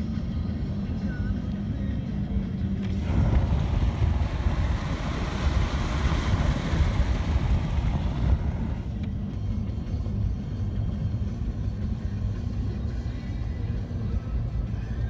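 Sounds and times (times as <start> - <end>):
car rumbling on road: 0.0 - 15.0
wind buffeting microphone: 2.9 - 9.1.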